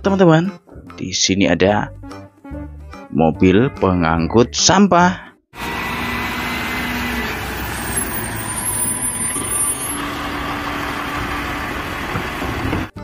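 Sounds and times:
garbage truck engine running: 0:05.6 - 0:13.0.

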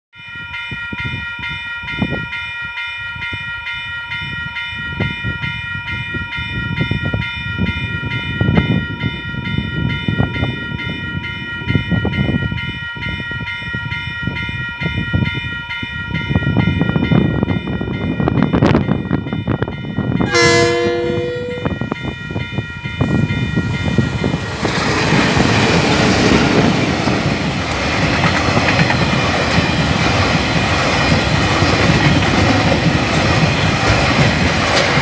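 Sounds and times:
level crossing bells ringing: 0:00.2 - 0:27.6.

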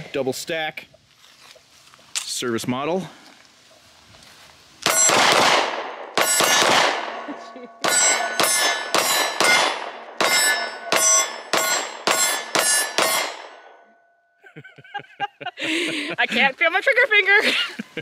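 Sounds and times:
pistol shots: 0:04.8 - 0:13.8
steel target clanging: 0:04.9 - 0:05.4, 0:06.2 - 0:14.0.

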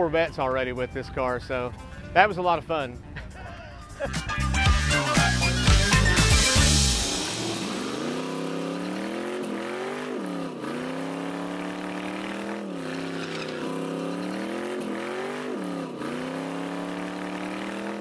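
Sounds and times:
car engine at high revs: 0:05.6 - 0:18.0
spinning tire noise: 0:06.8 - 0:18.0.

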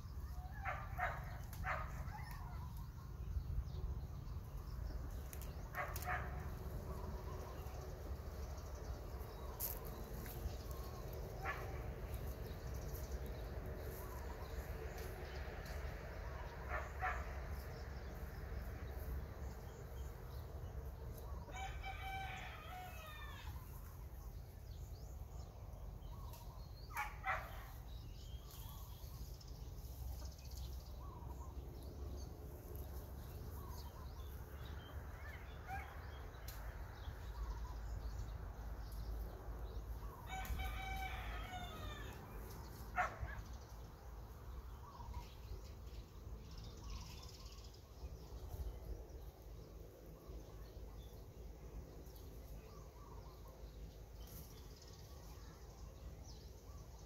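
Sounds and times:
steady low rumble: 0:02.7 - 0:21.8
rooster crowing: 0:21.5 - 0:23.5, 0:40.3 - 0:42.2.

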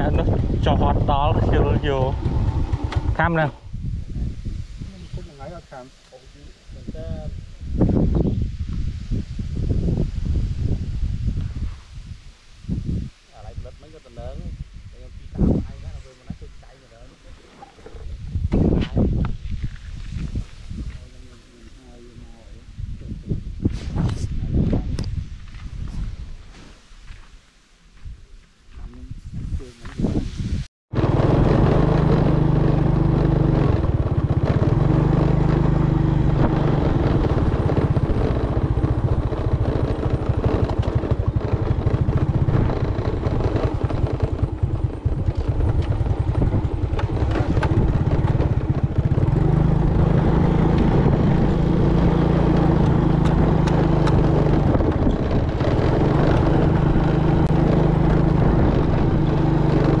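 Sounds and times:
small motorcycle engine running: 0:00.0 - 0:04.0, 0:30.9 - 1:00.0.

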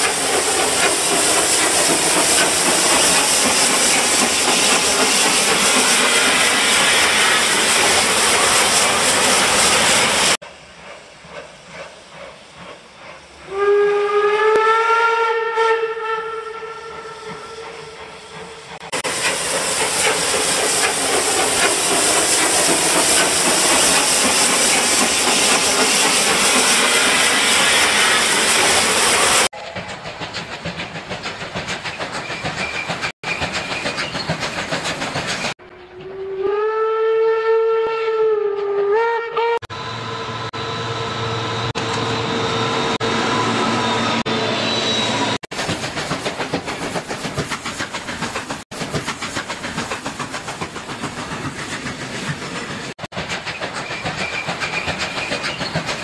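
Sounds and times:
loud steam hiss: 0:00.0 - 0:14.0, 0:16.6 - 0:35.6, 0:41.4 - 0:56.0
running train noise: 0:00.0 - 0:36.9, 0:39.4 - 0:56.0
steam train whistle: 0:13.4 - 0:18.7, 0:35.8 - 0:41.4.

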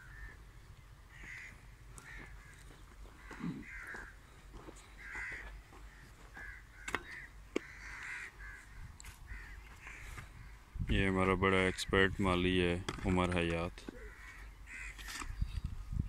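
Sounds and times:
crows cawing: 0:00.0 - 0:00.5, 0:01.1 - 0:10.7, 0:11.6 - 0:12.0, 0:13.8 - 0:15.4.

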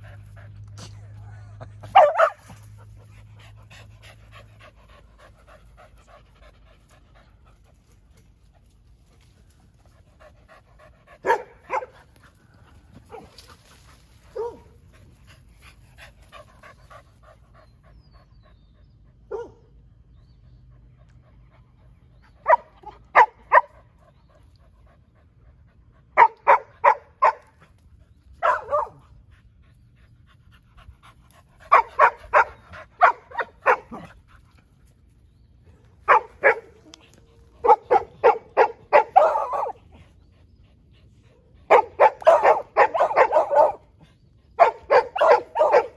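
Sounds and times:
dogs barking: 0:01.8 - 0:02.6, 0:11.1 - 0:12.0, 0:14.3 - 0:14.8, 0:19.3 - 0:19.7, 0:22.4 - 0:23.8, 0:26.2 - 0:27.6, 0:28.4 - 0:29.2, 0:31.6 - 0:34.2, 0:35.9 - 0:36.8, 0:37.4 - 0:40.0, 0:41.6 - 0:44.0, 0:44.6 - 0:45.9.

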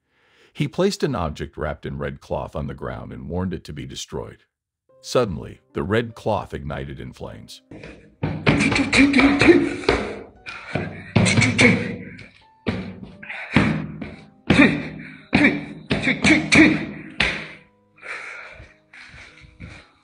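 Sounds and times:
music with percussive hits: 0:07.7 - 0:11.9.

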